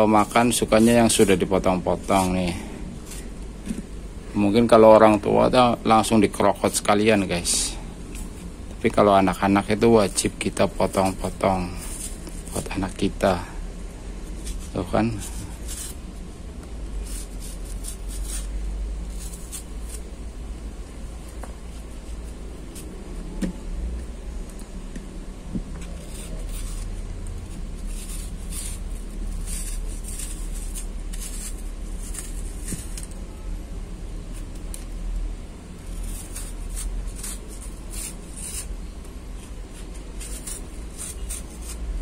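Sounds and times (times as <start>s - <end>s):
knife cutting apple skin: 8.9s - 13.1s, 14.3s - 20.2s, 25.6s - 33.4s, 35.8s - 42.0s.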